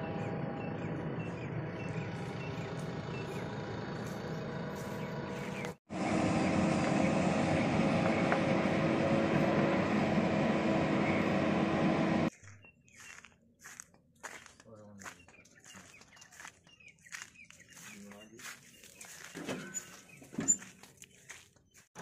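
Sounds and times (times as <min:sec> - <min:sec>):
diesel engine running under load: 0:00.0 - 0:12.3.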